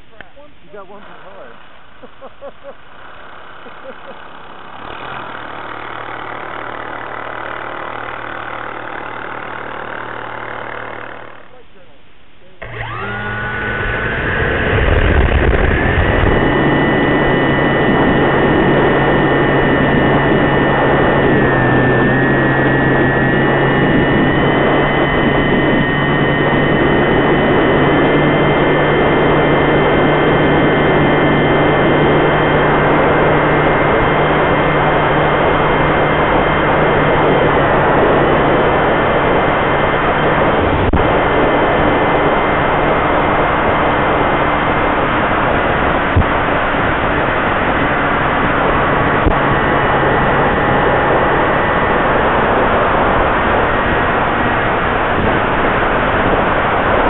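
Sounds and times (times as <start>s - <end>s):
model plane motor whine: 0.0s - 11.8s, 12.5s - 57.0s
wind rush: 13.9s - 57.0s.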